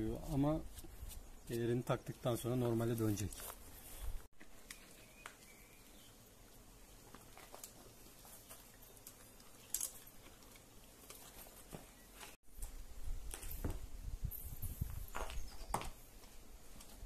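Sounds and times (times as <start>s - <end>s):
saddle tack clicks and rustles: 7.1s - 12.4s.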